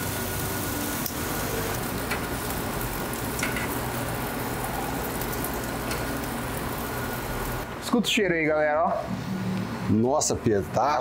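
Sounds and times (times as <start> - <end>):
meat sizzling on a grill: 0.0 - 7.7.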